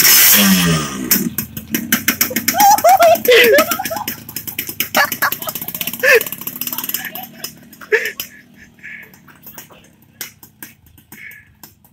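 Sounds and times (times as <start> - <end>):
exhaust crackling: 0.0 - 11.9
two-stroke motorcycle riding away: 0.0 - 11.9
person shouting: 2.4 - 3.6.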